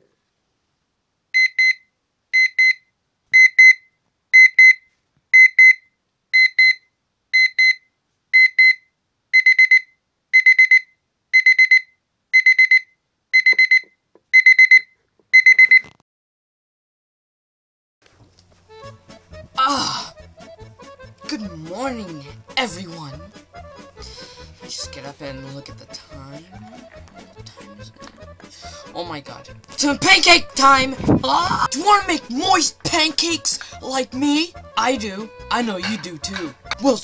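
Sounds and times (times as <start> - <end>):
electronic alarm clock beeping: 1.4 - 15.9.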